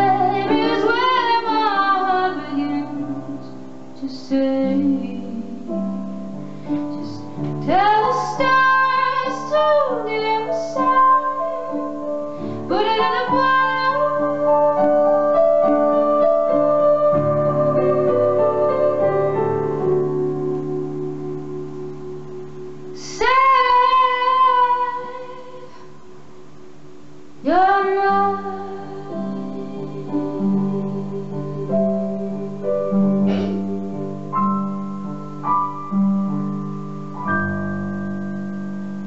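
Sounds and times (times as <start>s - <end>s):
woman singing: 0.0s - 6.0s, 7.0s - 19.4s, 22.9s - 26.0s, 27.4s - 32.9s
electric keyboard chords: 0.0s - 39.0s.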